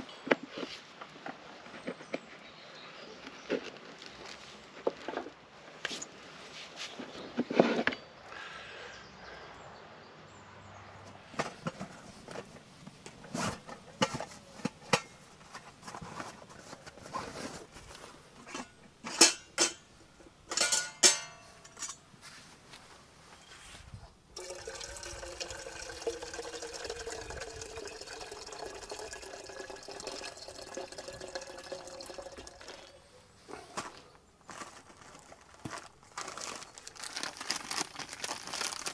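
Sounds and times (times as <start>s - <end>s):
metal coffee percolator clinking: 13.1s - 15.2s, 18.4s - 19.9s, 20.5s - 22.0s, 24.4s - 33.0s
water pouring: 24.4s - 33.0s.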